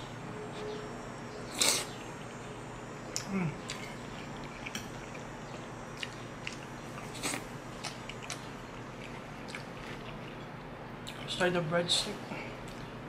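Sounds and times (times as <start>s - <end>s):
close chewing: 3.1s - 11.3s.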